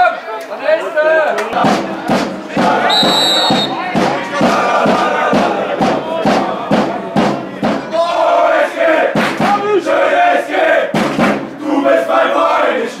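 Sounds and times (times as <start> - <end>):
football supporters chanting: 1.4 - 13.0
sharp drum beats: 1.5 - 10.2, 10.8 - 11.6.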